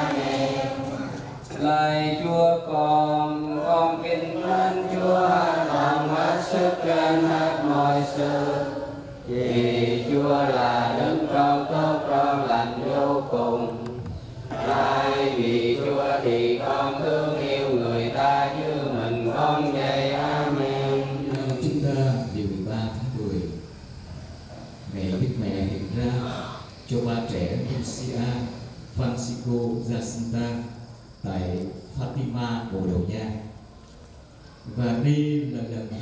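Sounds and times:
congregation chanting prayers: 0.0s - 36.0s.

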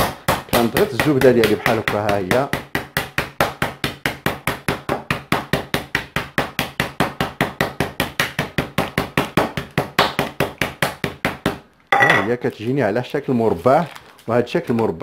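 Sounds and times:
rolling pin beating margarine: 0.0s - 11.6s.

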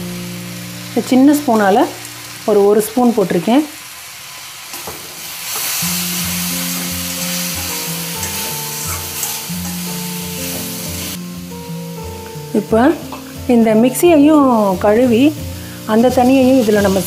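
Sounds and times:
vegetables sizzling in a pan: 0.0s - 17.0s
steel ladle stirring: 6.7s - 10.7s.

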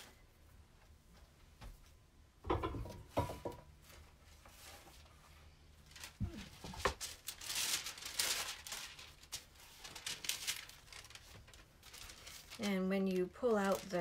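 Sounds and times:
wax paper crinkling: 3.8s - 14.0s.

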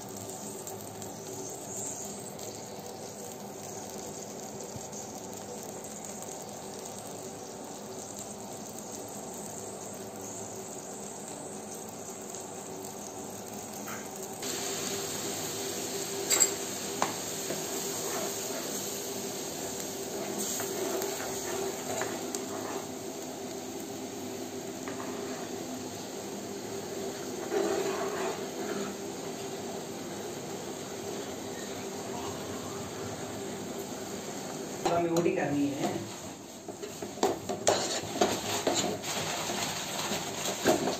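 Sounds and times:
milk mixture bubbling and sizzling: 0.0s - 40.9s
spoon scraping a pan: 16.3s - 18.8s, 20.2s - 22.9s, 24.8s - 25.6s, 27.1s - 29.0s, 36.7s - 40.9s.

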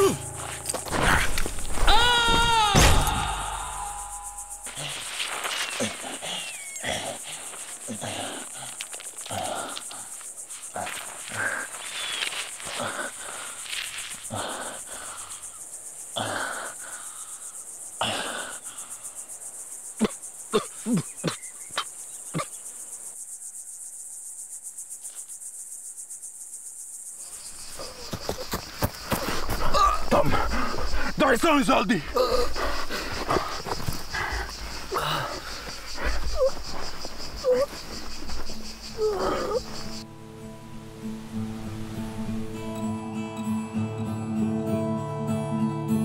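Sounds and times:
man groaning: 0.0s - 0.2s, 1.9s - 4.9s
insects droning: 0.0s - 46.0s
man breathing heavily: 5.8s - 11.8s, 12.6s - 15.6s, 27.8s - 31.2s, 31.9s - 40.0s.

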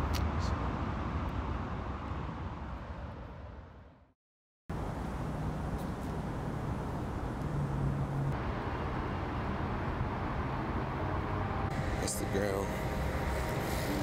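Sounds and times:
outdoor background noise: 0.0s - 14.0s
low hum: 7.2s - 14.0s.

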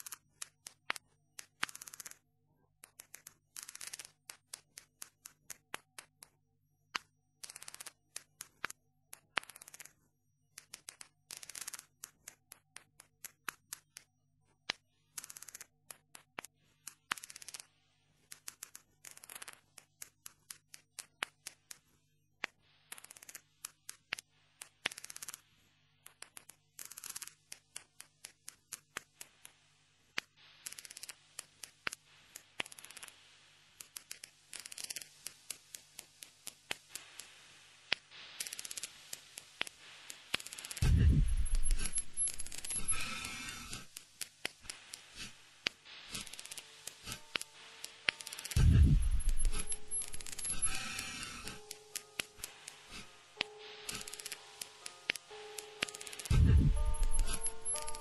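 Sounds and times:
sharp clicks and scratchy snips: 0.0s - 58.0s.

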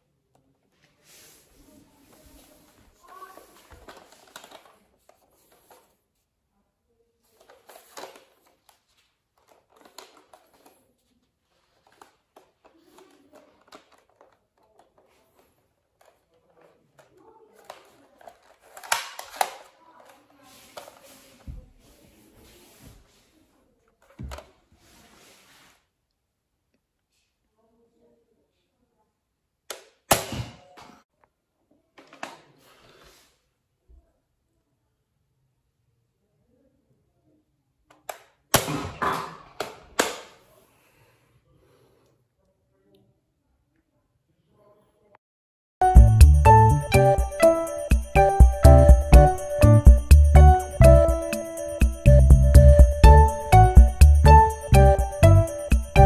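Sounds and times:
soft rustling in hands: 0.6s - 6.4s, 19.9s - 26.0s
plastic clicks: 11.8s - 21.0s.

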